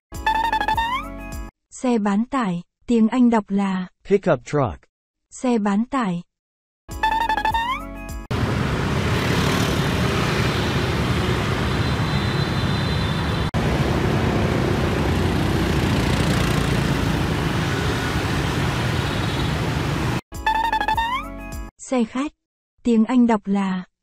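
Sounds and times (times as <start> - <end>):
cars passing: 8.3 - 20.2
scooters and motorbikes passing: 8.3 - 20.2.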